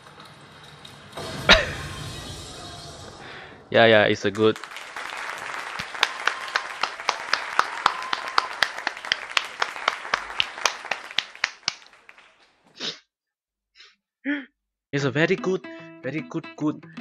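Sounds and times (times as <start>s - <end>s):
crowd applause: 1.3s - 12.6s
person clapping steadily: 4.5s - 12.3s.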